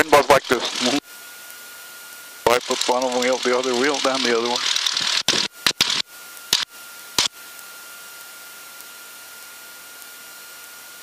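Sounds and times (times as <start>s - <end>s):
radio crackling bursts: 0.0s - 1.2s, 2.3s - 7.7s
faint high whine: 0.0s - 11.0s.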